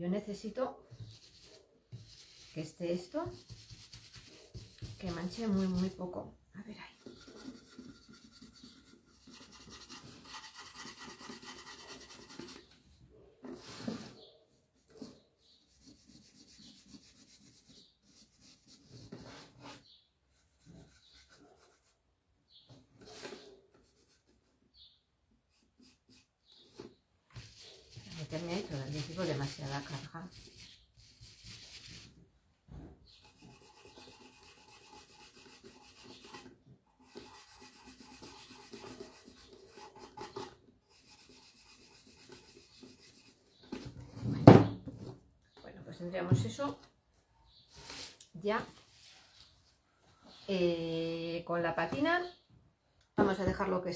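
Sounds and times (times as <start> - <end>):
rubbing on painted wood: 0.8 - 6.2, 6.8 - 12.8, 13.4 - 22.0, 23.0 - 24.9, 25.5 - 32.3, 33.0 - 44.2.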